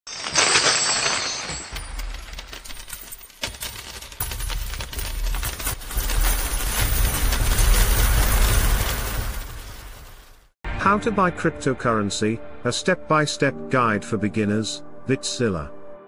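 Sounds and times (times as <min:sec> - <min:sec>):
metal coins pouring and clinking: 0:00.1 - 0:10.2.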